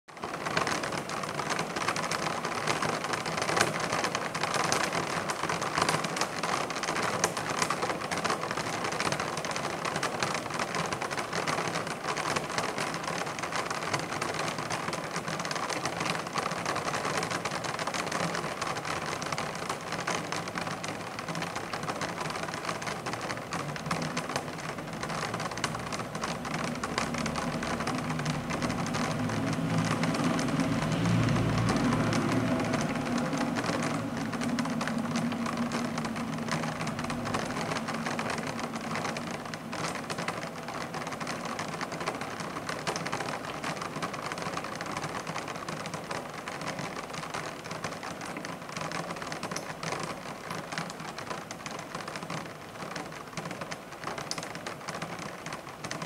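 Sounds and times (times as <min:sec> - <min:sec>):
rain tapping on window blinds: 0:00.1 - 0:56.0
city traffic rumble: 0:15.4 - 0:49.2.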